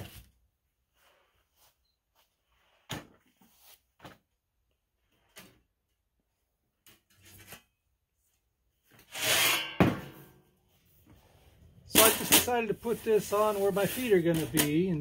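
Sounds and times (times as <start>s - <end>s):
metal sheet scraping on bench: 9.0s - 10.4s.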